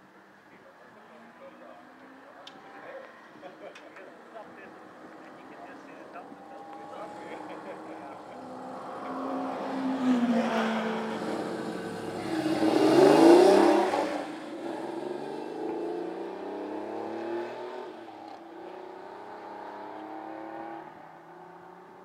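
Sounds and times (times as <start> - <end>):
car engine accelerating: 4.4 - 22.0.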